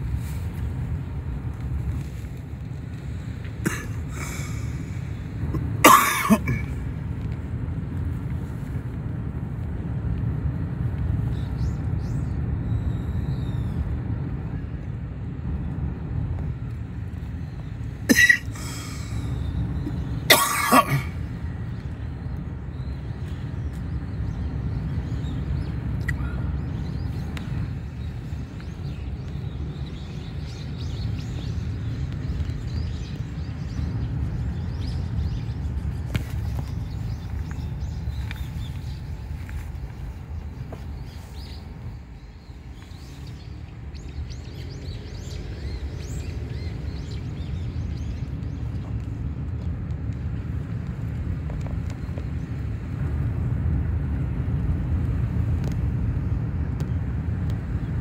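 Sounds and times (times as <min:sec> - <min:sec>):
car interior rumble: 0:00.0 - 0:58.0
person coughing: 0:03.6 - 0:04.6, 0:05.5 - 0:06.8, 0:18.1 - 0:18.9, 0:20.3 - 0:21.2.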